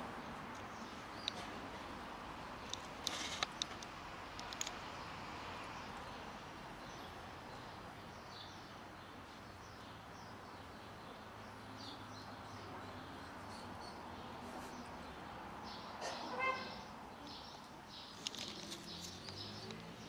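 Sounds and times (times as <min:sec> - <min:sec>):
sharp clicks: 0:02.7 - 0:04.8.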